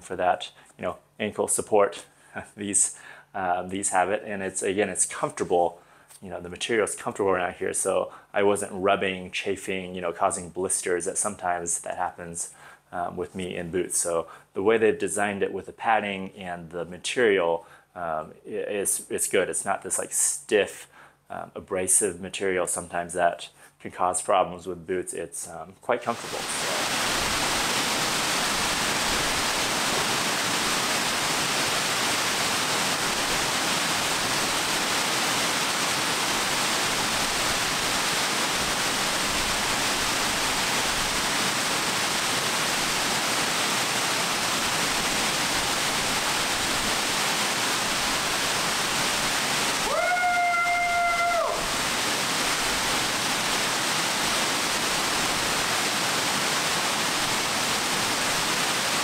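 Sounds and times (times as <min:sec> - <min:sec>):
waterfall pouring onto rocks: 0:26.1 - 0:59.0
high-pitched cry: 0:49.8 - 0:51.7.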